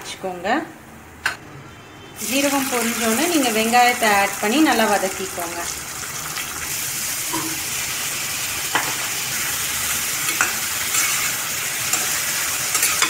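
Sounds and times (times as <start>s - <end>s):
onions sizzling in oil: 2.2s - 13.0s
spatula stirring: 10.2s - 13.0s.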